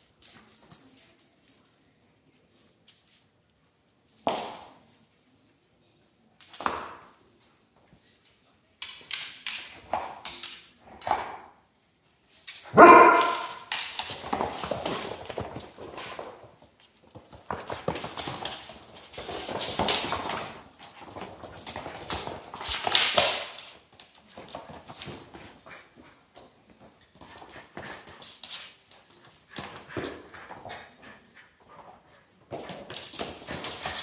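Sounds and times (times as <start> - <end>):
dogs barking and yipping: 12.7 - 13.6.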